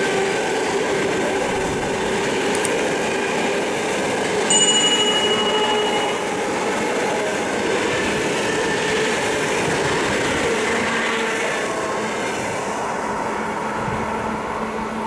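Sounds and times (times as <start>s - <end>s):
train running past on rails: 0.0s - 15.0s.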